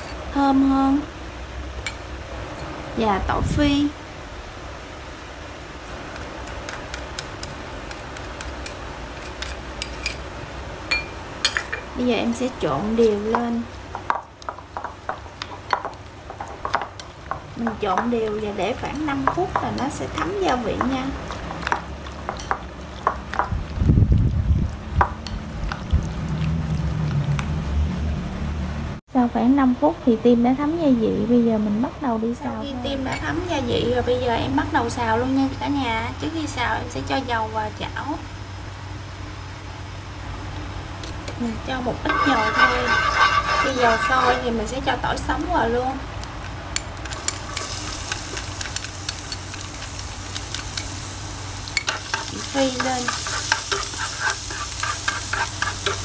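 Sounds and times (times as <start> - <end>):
garlic sizzling in oil: 11.4 - 24.4, 40.9 - 56.0
wooden utensil stirring: 42.0 - 44.7, 51.8 - 56.0.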